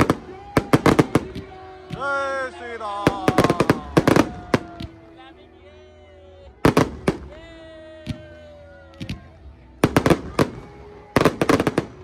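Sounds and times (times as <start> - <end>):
fireworks cracking bangs: 0.0 - 2.0, 9.8 - 12.0.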